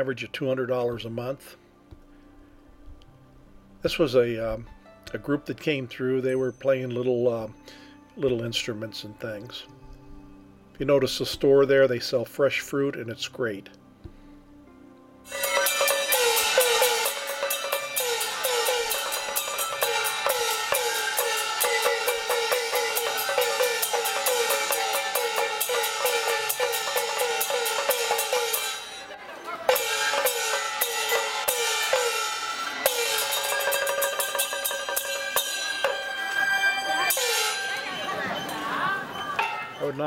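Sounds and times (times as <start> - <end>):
gong strokes bending downward: 15.3 - 39.8
held wind instrument note: 15.3 - 39.8
cymbal clashes: 15.3 - 40.0.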